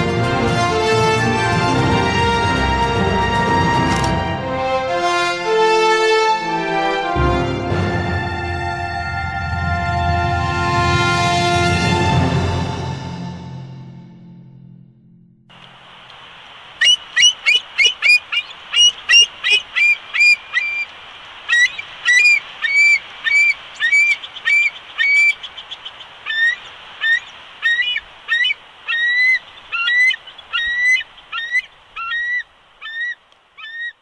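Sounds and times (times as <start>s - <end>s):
steady hiss: 15.5s - 34.0s
eagle high piping calls: 16.8s - 34.0s.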